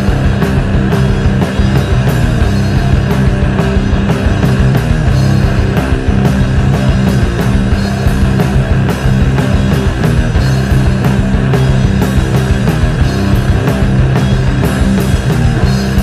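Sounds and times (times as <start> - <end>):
loud rock music: 0.0 - 16.0.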